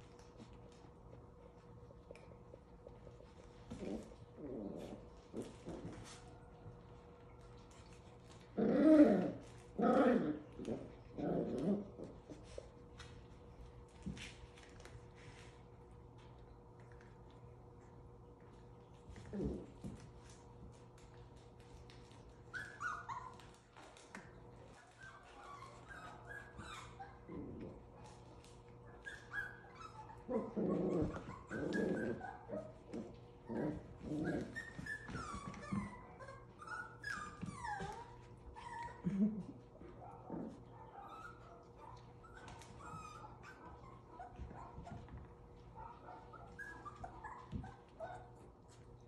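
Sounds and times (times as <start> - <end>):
puppies growling and barking: 0.0 - 49.0
puppies whining and yipping: 22.2 - 27.7, 28.8 - 39.1, 40.1 - 49.0.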